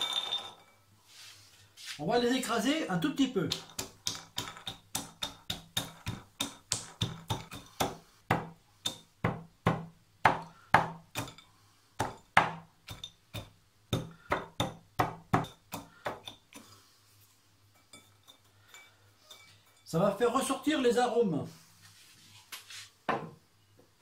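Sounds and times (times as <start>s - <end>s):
pestle crushing nuts in bowl: 3.5s - 11.4s, 12.0s - 16.7s.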